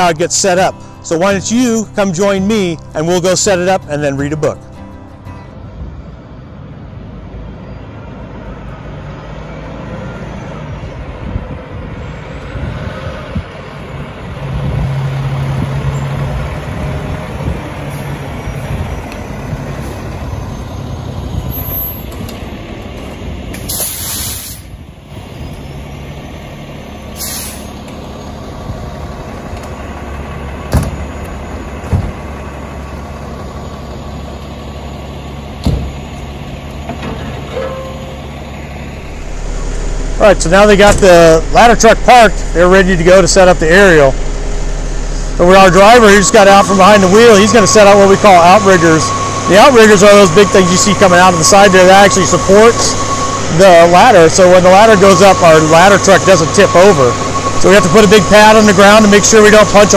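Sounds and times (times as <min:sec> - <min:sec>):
fire truck diesel engine running: 0:00.0 - 0:59.9
air brakes hissing: 0:23.6 - 0:24.8, 0:27.1 - 0:27.9.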